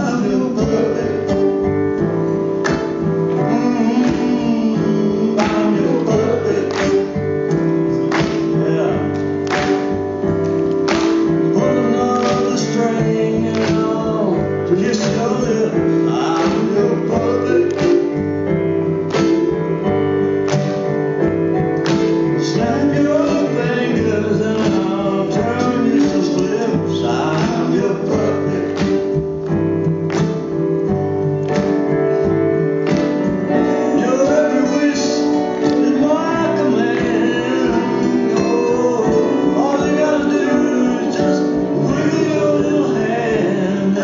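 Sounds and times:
man singing: 0:00.0 - 0:02.4, 0:03.2 - 0:09.9, 0:11.4 - 0:18.5, 0:22.2 - 0:29.2, 0:33.5 - 0:44.0
keyboard chords: 0:00.0 - 0:44.0.

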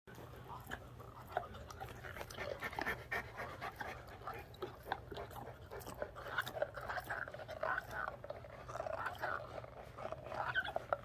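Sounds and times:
dog chewing on a ball: 0:00.1 - 0:11.0
dog panting: 0:00.1 - 0:11.0.

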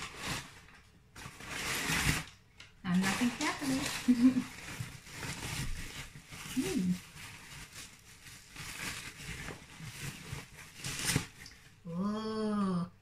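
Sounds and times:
paper rustling and crinkling: 0:00.0 - 0:11.8
person humming: 0:06.6 - 0:07.0, 0:11.9 - 0:13.0.

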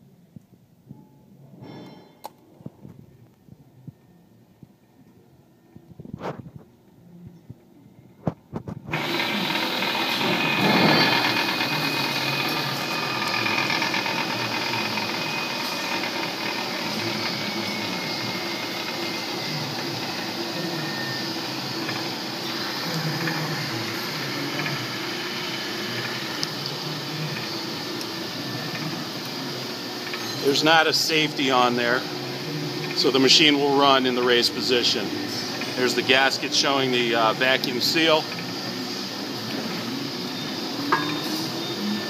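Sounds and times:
mixer motor running: 0:08.8 - 0:42.0.

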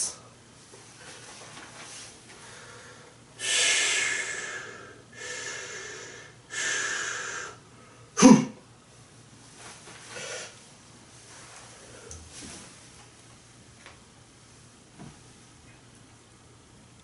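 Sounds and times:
man breathing forcefully: 0:02.4 - 0:07.6.

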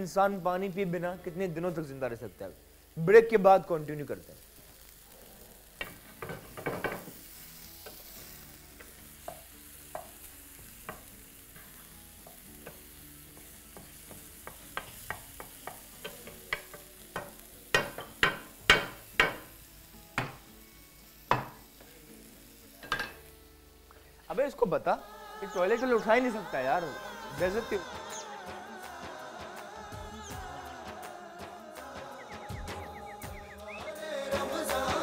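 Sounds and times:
faint sizzle of frying: 0:00.0 - 0:35.0
spatula knocking against pan: 0:13.4 - 0:19.4.

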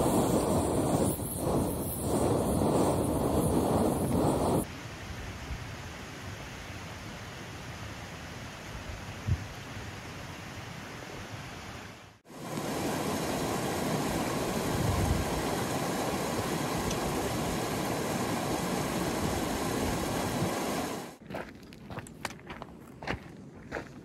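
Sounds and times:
stream rushing over boulders: 0:11.3 - 0:21.2
footsteps crunching on gravel: 0:21.2 - 0:24.0.

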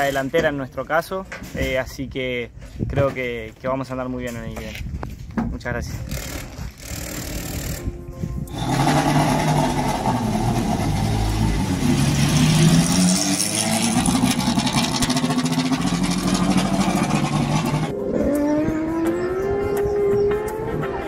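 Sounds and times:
race car engine running loudly: 0:08.5 - 0:21.0.

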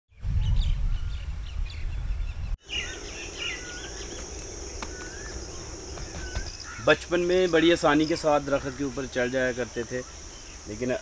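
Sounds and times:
wind rumble on microphone: 0:00.1 - 0:03.0
birds chirping: 0:00.2 - 0:11.0
honeybee colony humming: 0:02.6 - 0:10.9
high-pitched insect drone: 0:02.6 - 0:11.0.

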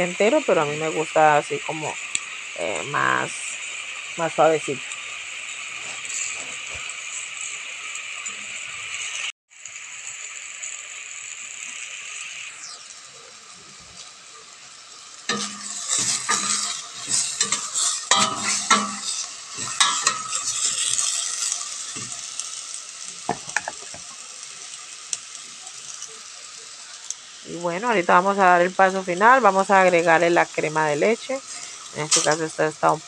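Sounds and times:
food sizzling in a metal pot: 0:00.0 - 0:33.0
metal spoon scraping a pot: 0:15.3 - 0:22.1.

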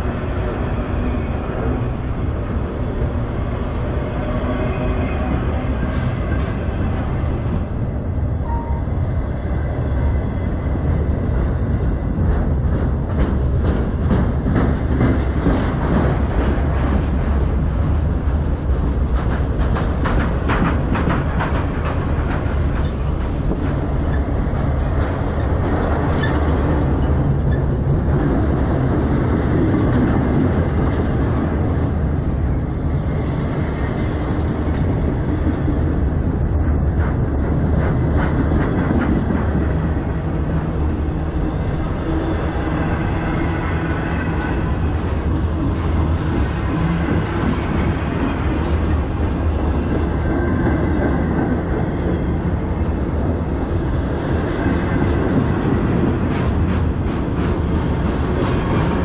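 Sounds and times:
train wheels rumbling on rail: 0:00.0 - 0:59.0
wheels clicking over rail joints: 0:10.9 - 0:31.6.

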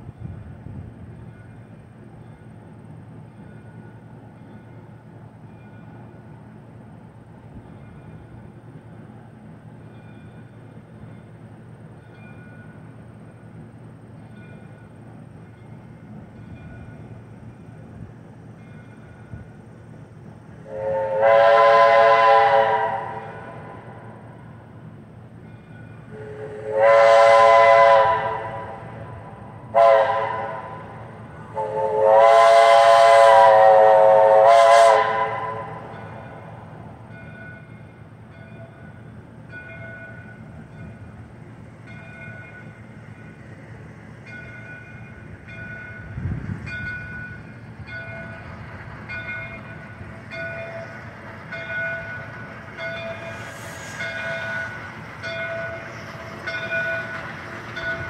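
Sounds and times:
locomotive bell ringing: 0:01.2 - 0:06.4, 0:07.6 - 0:08.9, 0:09.8 - 0:19.8, 0:25.3 - 0:26.6, 0:35.7 - 0:58.0
steam whistle blasts: 0:20.6 - 0:24.2, 0:26.1 - 0:36.2.

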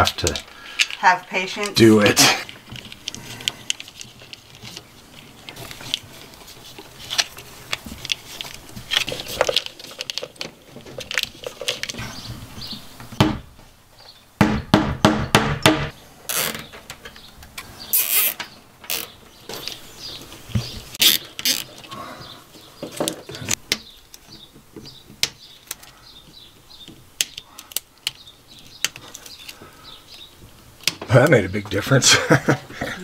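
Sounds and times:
plastic tubing crinkling: 0:00.0 - 0:13.0, 0:16.3 - 0:17.1, 0:17.9 - 0:22.0.

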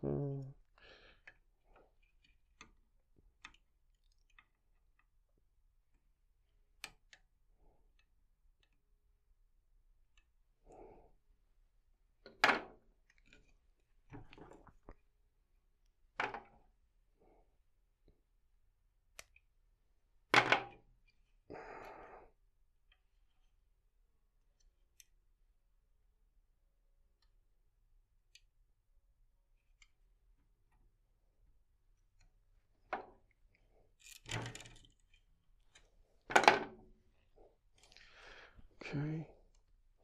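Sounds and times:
stringing machine clicks and knocks: 0:34.0 - 0:36.9.

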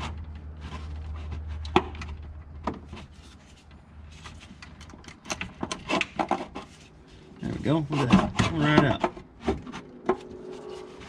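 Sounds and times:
light scraping: 0:05.8 - 0:11.0.

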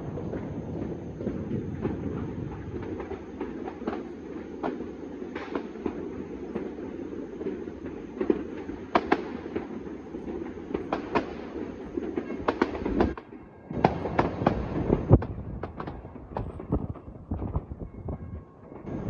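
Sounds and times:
distant fireworks crackling rumble: 0:00.0 - 0:19.0
firework bangs: 0:08.2 - 0:17.8.

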